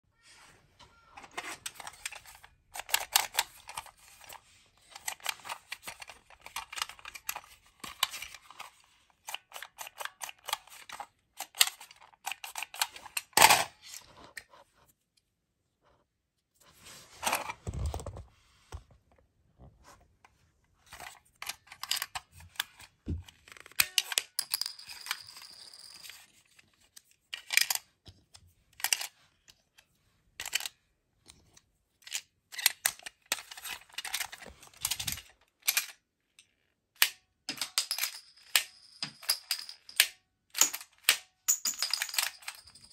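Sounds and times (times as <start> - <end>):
plastic toy shooter clicking: 1.7 - 13.7.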